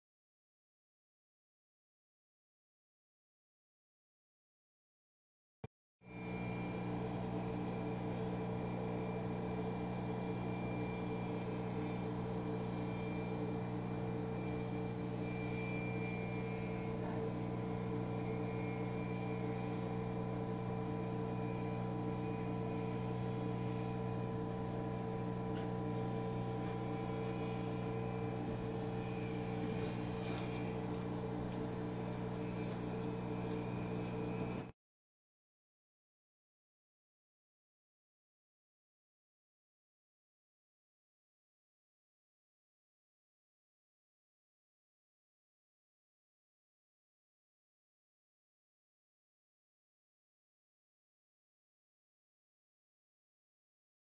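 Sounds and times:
steady machine hum: 6.0s - 34.8s.

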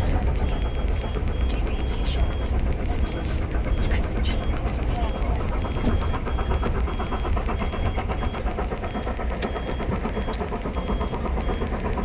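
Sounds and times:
faint high-pitched beep: 0.0s - 11.7s
car engine and road noise: 0.0s - 12.0s.

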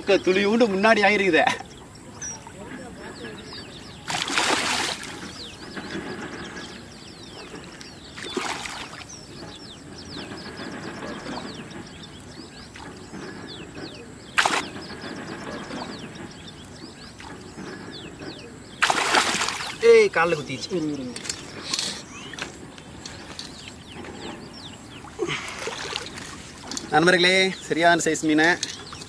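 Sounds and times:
birds chirping: 0.0s - 29.0s
fish splashing in water: 4.0s - 5.8s, 7.4s - 9.2s, 14.4s - 14.7s, 18.8s - 19.8s
sharp crack: 14.3s - 16.0s, 18.8s - 19.9s.

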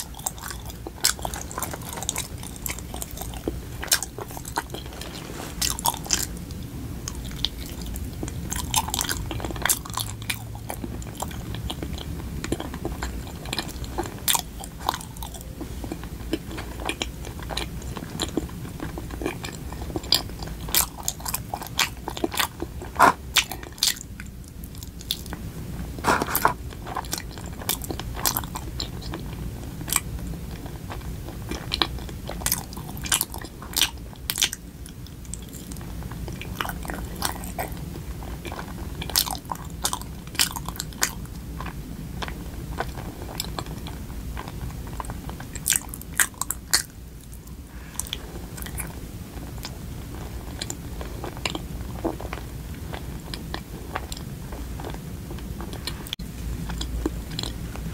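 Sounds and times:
chewing rice cake: 0.0s - 57.9s
low steady hum: 0.0s - 57.9s.

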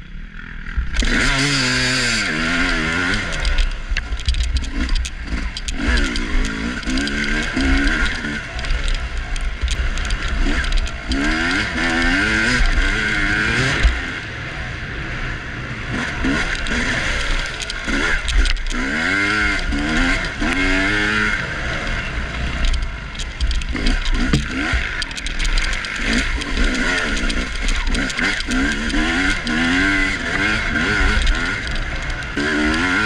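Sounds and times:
dirt bike engine revving: 0.2s - 33.0s
loose clicking rattle: 2.2s - 14.0s, 16.2s - 33.0s.

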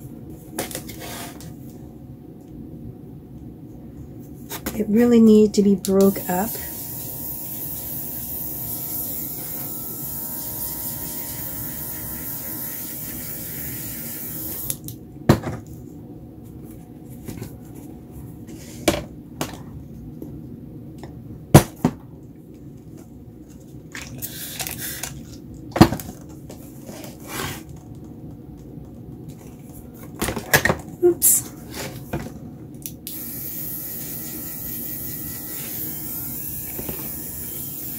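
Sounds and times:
airbrush hissing air: 6.2s - 14.7s.

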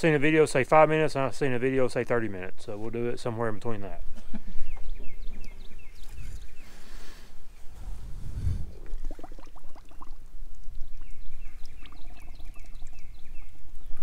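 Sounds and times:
water sloshing in a bucket: 8.8s - 13.8s.

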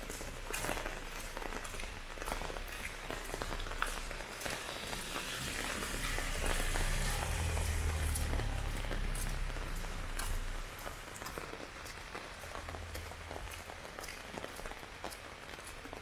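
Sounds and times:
heavy rain splashing: 0.0s - 16.0s
low rumble: 3.4s - 11.2s.

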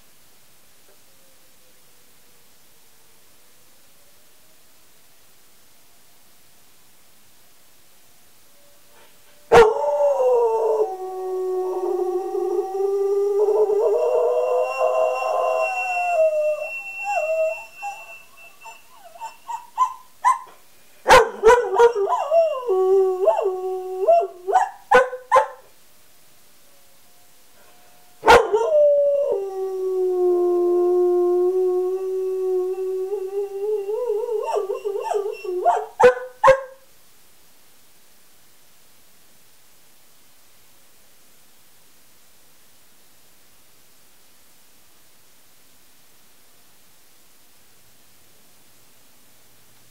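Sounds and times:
dog howling and yipping: 9.5s - 25.6s, 28.2s - 36.7s.

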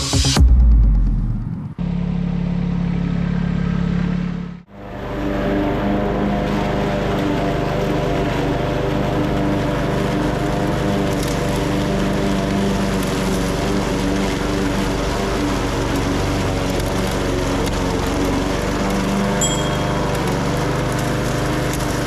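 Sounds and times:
small lawn mower engine running: 1.8s - 22.0s.

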